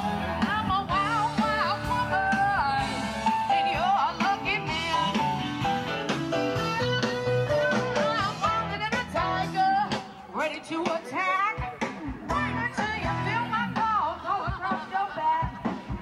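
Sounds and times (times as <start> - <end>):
blues guitar: 0.0 - 16.0.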